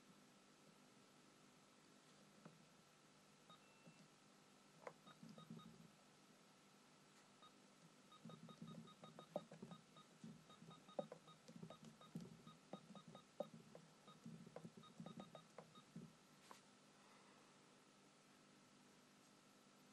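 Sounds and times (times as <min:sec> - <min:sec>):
computer keyboard typing: 0:08.2 - 0:15.9.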